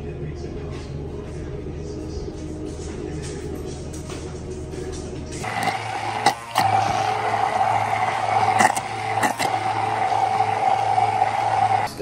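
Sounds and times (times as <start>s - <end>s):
stick blender motor humming: 5.4s - 12.0s.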